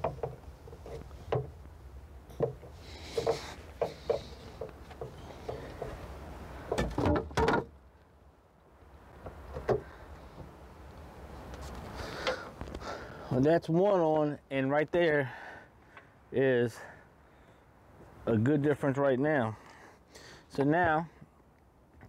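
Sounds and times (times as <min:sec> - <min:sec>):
clicks and knocks of a lift support: 0:02.3 - 0:06.0.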